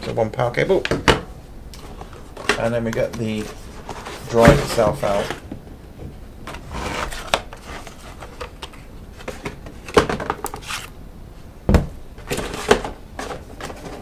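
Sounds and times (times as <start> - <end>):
packing caps rustling: 10.4 - 11.0.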